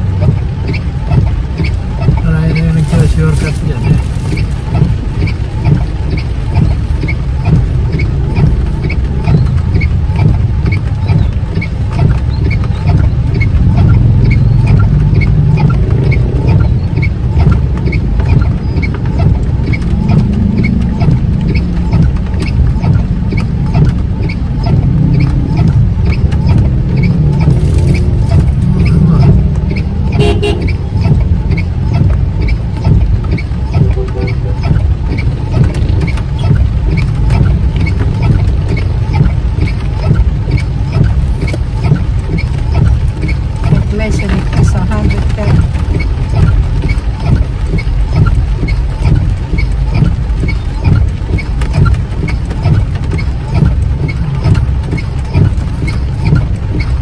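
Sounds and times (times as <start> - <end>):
car driving in rain: 0.0 - 57.0
engine and tyre rumble: 0.0 - 57.0
light regular ticking: 0.0 - 57.0
car horn toot: 30.1 - 30.8, 33.8 - 34.7.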